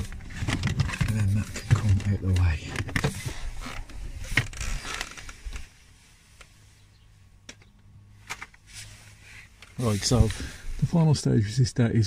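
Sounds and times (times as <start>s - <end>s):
plastic trim panel rubbing and creaking: 0.0s - 5.7s.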